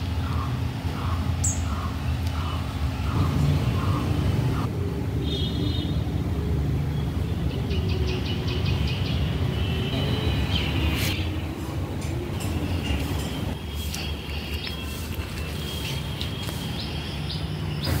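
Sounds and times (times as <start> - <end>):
bird chirping: 0.0 - 4.7, 7.0 - 11.4.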